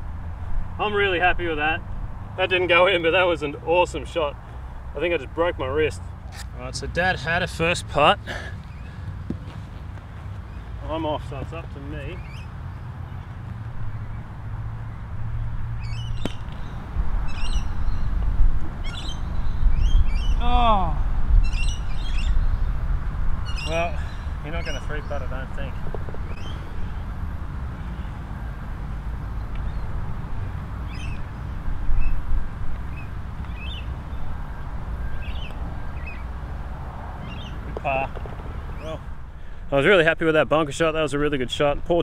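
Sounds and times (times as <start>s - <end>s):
wind rumble on microphone: 13.3s - 28.4s.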